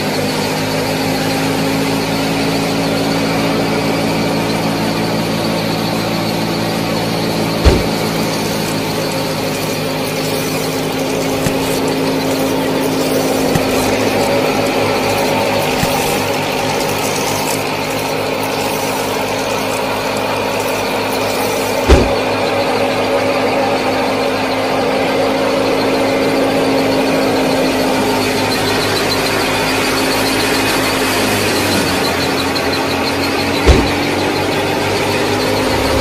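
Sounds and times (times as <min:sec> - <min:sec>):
small motor humming whine: 0:00.0 - 0:23.0, 0:24.7 - 0:36.0
sharp knock: 0:07.6 - 0:08.1.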